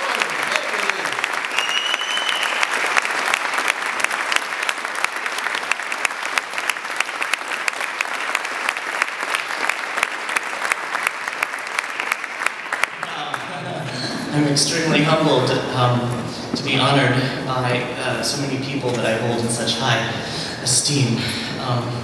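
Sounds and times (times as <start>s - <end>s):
audience applauding: 0.0s - 15.5s
high whistle: 1.5s - 2.8s.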